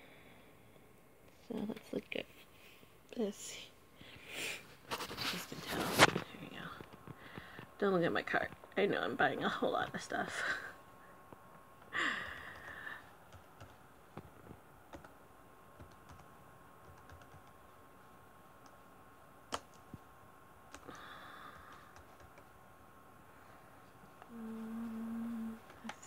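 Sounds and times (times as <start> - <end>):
faint steady high tone: 24.3 - 25.7.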